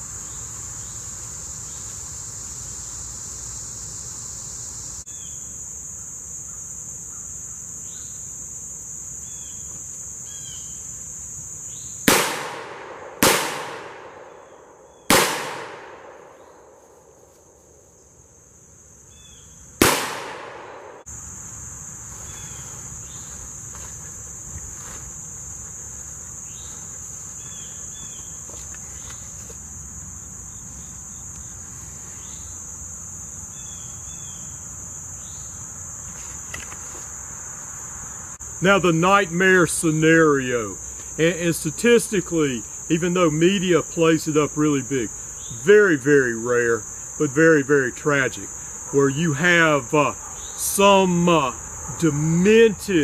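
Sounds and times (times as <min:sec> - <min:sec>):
high insect chorus: 0:00.0 - 0:53.0
revolver gunshots echoing: 0:12.1 - 0:16.8, 0:19.8 - 0:21.1.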